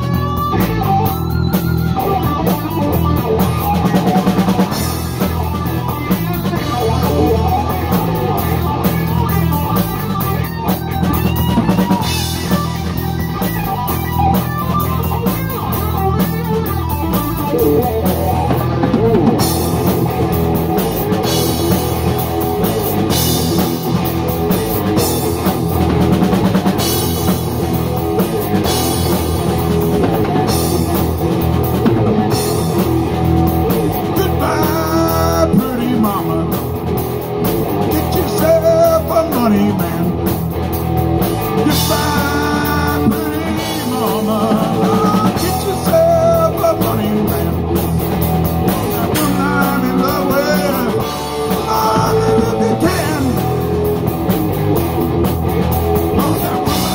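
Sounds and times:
drum beat: 0.0s - 56.9s
rock band playing: 0.0s - 56.9s
lead voice singing: 2.0s - 10.0s, 33.8s - 37.0s, 37.7s - 40.5s, 41.3s - 54.1s, 56.0s - 56.9s.

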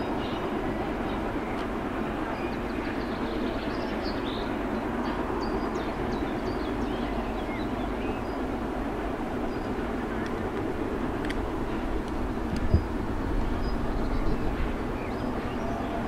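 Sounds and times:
distant steam train rumble: 0.0s - 16.0s
birds chirping: 11.7s - 16.0s.

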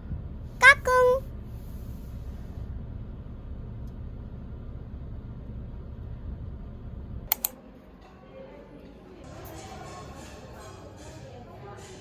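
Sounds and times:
sharp clicks: 7.3s - 7.6s.

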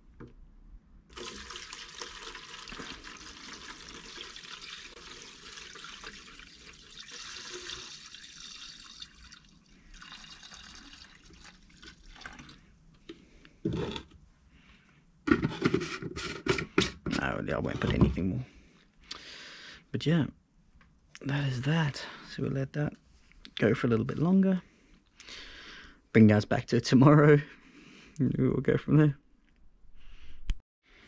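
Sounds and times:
liquid pouring into plastic tub: 1.1s - 12.6s
liquid trickling and dripping: 1.1s - 12.7s.

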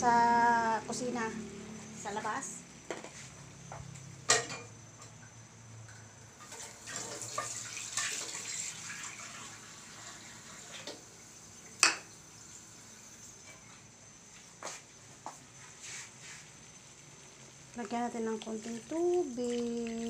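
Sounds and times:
kitchen tap running: 6.5s - 12.0s, 17.7s - 20.0s.

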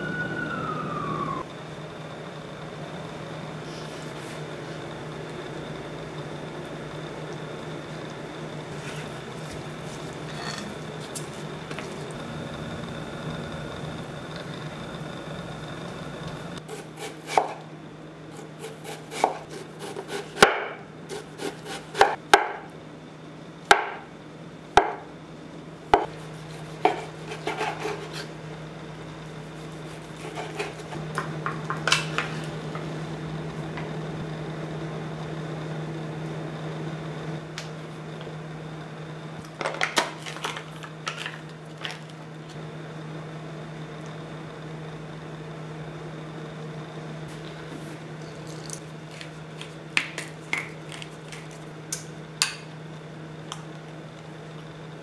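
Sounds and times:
steady low hum: 0.0s - 55.0s
knife chopping on wooden board: 16.7s - 17.6s, 18.8s - 22.6s, 26.8s - 28.3s.

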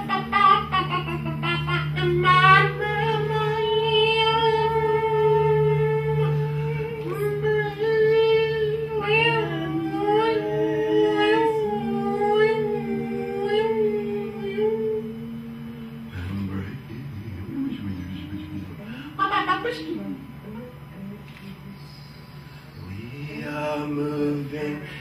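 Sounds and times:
held melodic notes with vibrato: 0.0s - 16.4s
steady low drone: 0.0s - 25.0s.

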